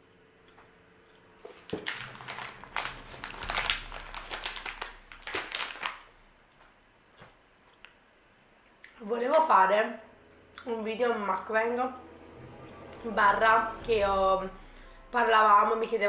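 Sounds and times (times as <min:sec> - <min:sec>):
plastic candy bag crinkling: 0:01.5 - 0:06.1.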